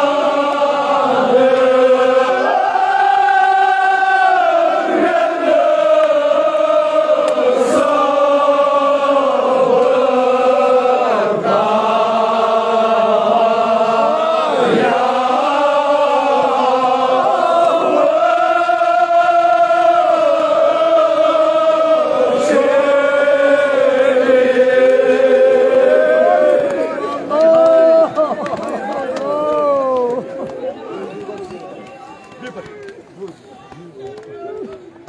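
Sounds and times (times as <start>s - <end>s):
men chanting in unison: 0.0s - 27.4s.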